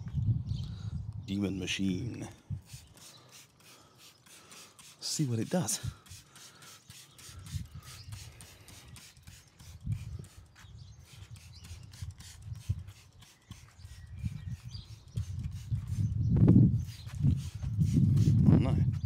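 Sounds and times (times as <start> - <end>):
spray bottle squirting: 2.6 - 16.1, 16.8 - 18.5.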